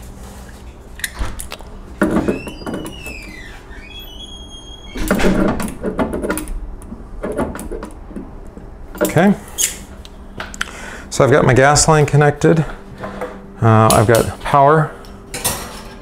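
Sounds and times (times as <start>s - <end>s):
squeaky creak of metal fitting: 2.2s - 5.4s.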